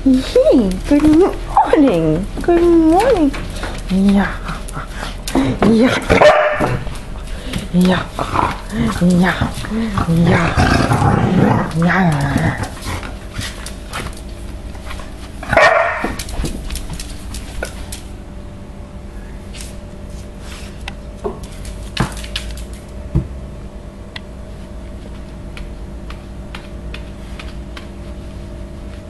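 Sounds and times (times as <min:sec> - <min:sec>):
steady low hum: 0:00.0 - 0:29.0
dog claws clicking on tiles: 0:00.7 - 0:10.8, 0:11.6 - 0:14.6, 0:16.0 - 0:18.1, 0:21.2 - 0:23.0, 0:25.6 - 0:27.9.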